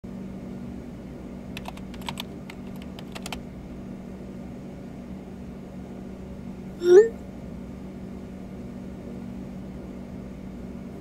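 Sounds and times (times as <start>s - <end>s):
low steady hum: 0.6s - 11.0s
keyboard typing: 1.6s - 3.4s.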